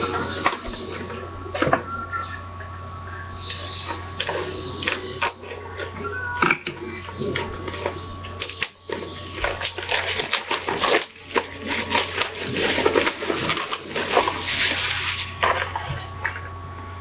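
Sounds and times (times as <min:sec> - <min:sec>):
steady low hum: 0:00.0 - 0:17.0
card packs rustling and crinkling: 0:07.6 - 0:14.6.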